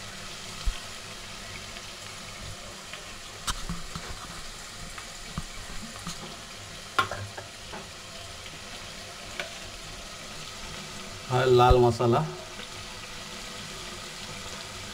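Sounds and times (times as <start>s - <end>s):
onions sizzling in oil: 0.0s - 14.9s
crackles and pops: 1.6s - 6.4s.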